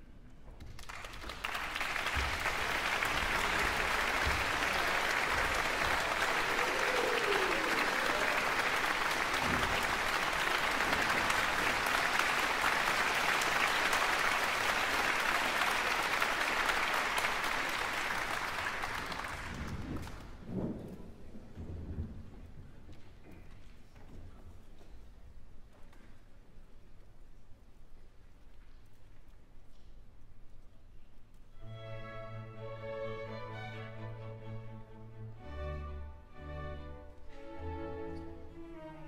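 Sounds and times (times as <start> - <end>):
audience applauding: 0.6 - 20.6.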